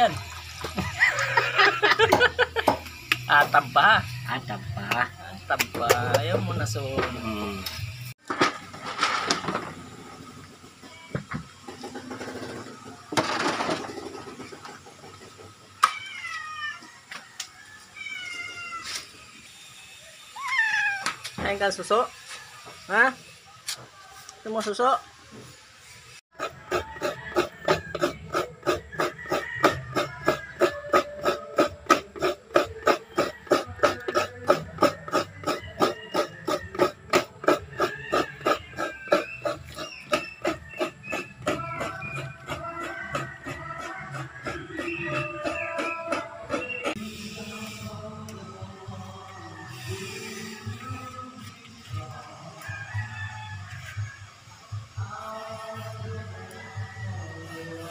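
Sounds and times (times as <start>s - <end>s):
cat meowing: 18.0s - 18.9s, 20.4s - 21.2s.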